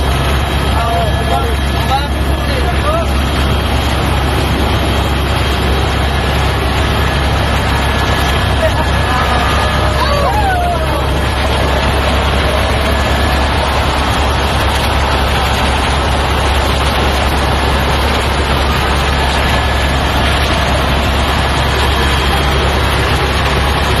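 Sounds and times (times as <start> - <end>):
aircraft cabin engine drone: 0.0 - 24.0.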